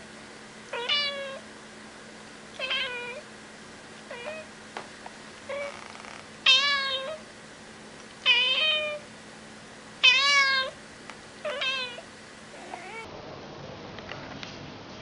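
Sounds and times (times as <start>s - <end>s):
cat meowing: 0.7s - 1.4s, 2.6s - 3.2s, 4.1s - 4.5s, 5.5s - 7.2s, 8.2s - 9.0s, 10.0s - 10.8s, 11.4s - 13.1s.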